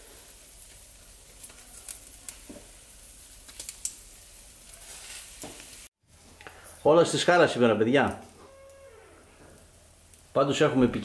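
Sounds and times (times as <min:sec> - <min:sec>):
food sizzling on charcoal grill: 0:00.0 - 0:11.0.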